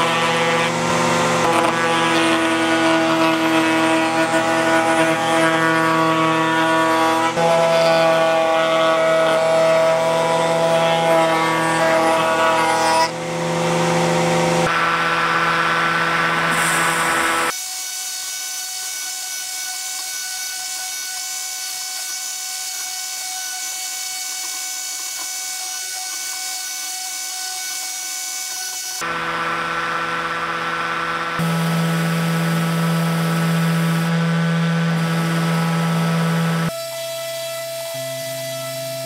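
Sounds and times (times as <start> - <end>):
router table running: 0.0 - 17.6, 22.0 - 36.8
sander high whine: 11.5 - 18.4, 28.7 - 39.0.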